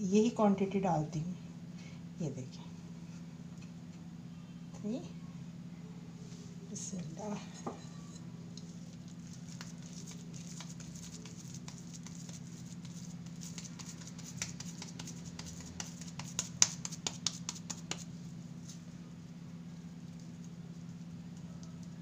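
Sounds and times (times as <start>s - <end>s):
steady low hum: 0.0s - 22.0s
hands patting and slapping food: 8.6s - 18.1s.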